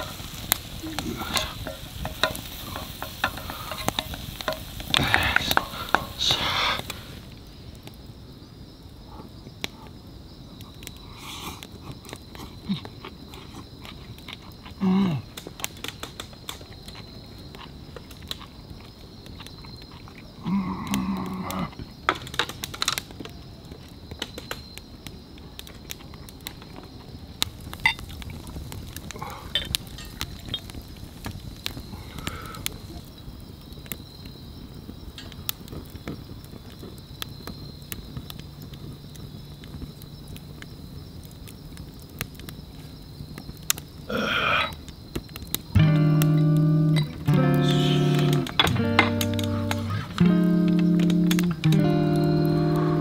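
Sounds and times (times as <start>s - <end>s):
food sizzling in skillet: 0.0s - 7.7s, 27.4s - 33.4s, 45.6s - 53.0s
wood fire crackling and popping: 0.0s - 53.0s
man humming while chewing: 14.6s - 15.3s, 45.8s - 53.0s.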